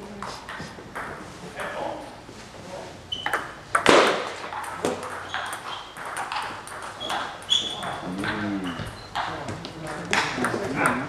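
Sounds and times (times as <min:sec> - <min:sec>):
ping-pong ball clicks: 0:03.2 - 0:08.4.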